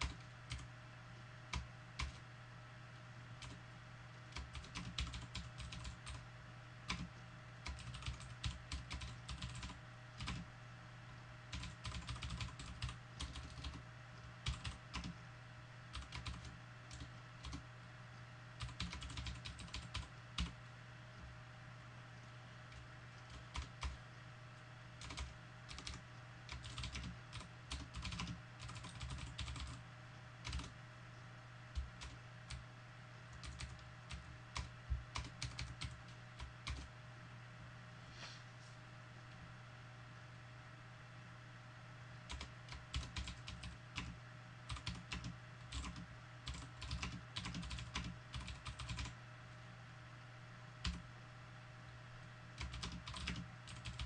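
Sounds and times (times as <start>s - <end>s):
keyboard typing: 0.0s - 0.7s, 1.5s - 2.2s, 3.4s - 3.6s, 4.3s - 6.2s, 6.9s - 10.5s, 11.5s - 15.2s, 15.9s - 17.6s, 18.6s - 20.6s, 22.2s - 24.0s, 25.0s - 29.8s, 30.4s - 30.8s, 31.7s - 32.6s, 33.3s - 36.9s, 42.3s - 49.2s, 50.8s - 51.0s, 52.6s - 54.0s
steady low hum: 0.0s - 54.0s.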